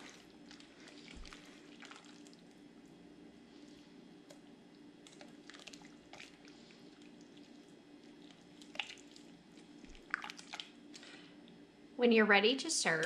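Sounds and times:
low steady hum: 0:00.0 - 0:13.0
tongs squelching in meat juices: 0:05.1 - 0:10.7.

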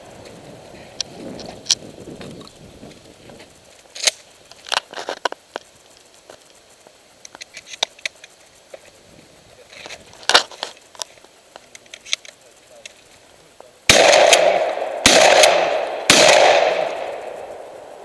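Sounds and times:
gun handling clicks: 0:03.9 - 0:05.7
shotgun shots echoing: 0:13.9 - 0:18.0.

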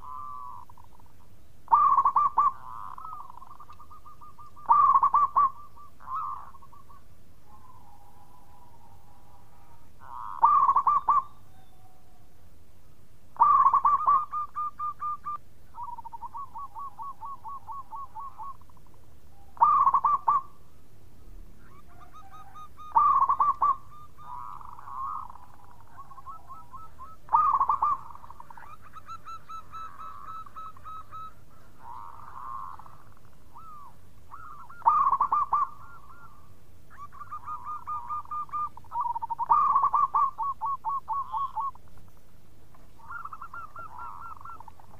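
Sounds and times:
dove cooing: 0:00.0 - 0:12.3, 0:13.4 - 0:20.7, 0:21.6 - 0:41.9, 0:43.0 - 0:44.9
fainter bird calls: 0:00.0 - 0:44.9.

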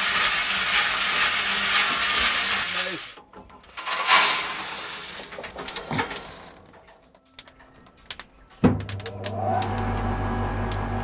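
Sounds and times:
beans stirred by hand: 0:00.0 - 0:03.1, 0:03.7 - 0:06.7
coffee beans rattling: 0:03.6 - 0:08.2
metal drawer pulled out: 0:03.7 - 0:07.0.

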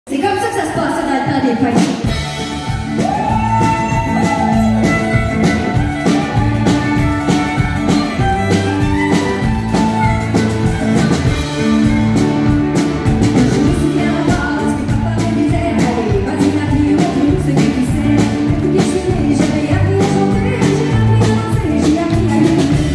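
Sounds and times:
live country band playing: 0:00.1 - 0:22.9
steady drum beat: 0:01.6 - 0:22.9
woman singing into microphone: 0:13.6 - 0:22.9.

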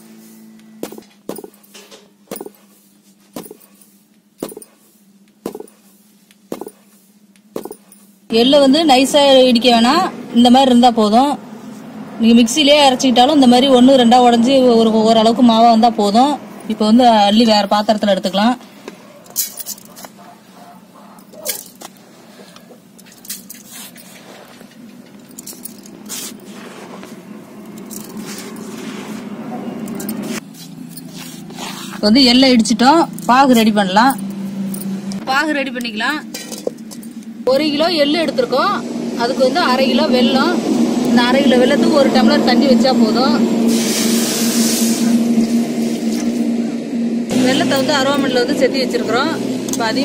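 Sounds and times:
wooden pestle pounding in stone mortar: 0:05.4 - 0:05.8, 0:06.5 - 0:06.8
seeds scraping in stone mortar: 0:26.0 - 0:29.4, 0:30.0 - 0:32.0.

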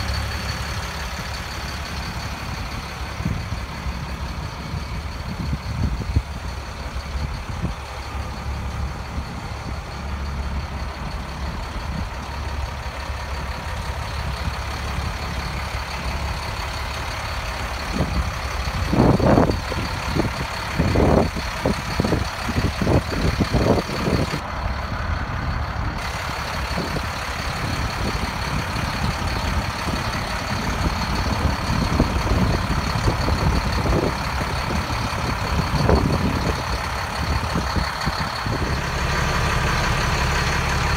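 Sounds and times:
low rumbling bursts: 0:00.0 - 0:40.9
truck engine idling: 0:00.0 - 0:40.9.

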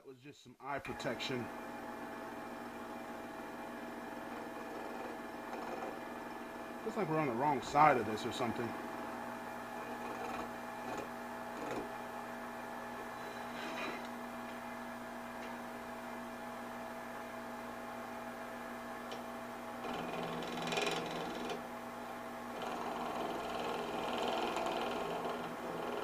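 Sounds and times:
lathe motor humming: 0:00.9 - 0:26.0
knife scraping turning wood: 0:04.0 - 0:06.4, 0:09.8 - 0:11.9, 0:13.2 - 0:14.1.

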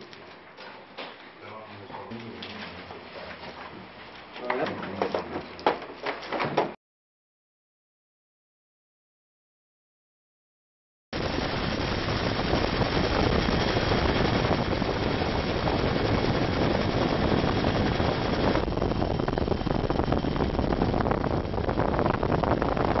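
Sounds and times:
helicopter rotor chopping: 0:11.2 - 0:23.0.

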